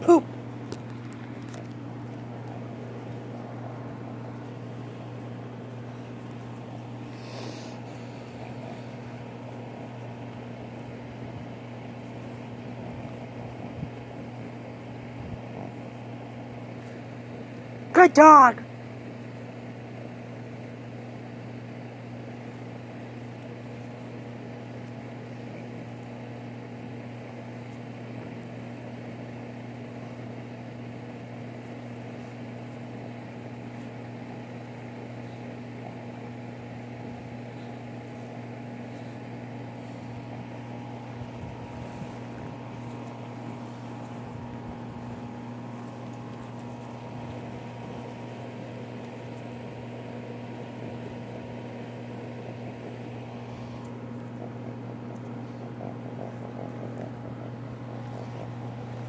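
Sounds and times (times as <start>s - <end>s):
motor humming: 19.2s - 59.0s.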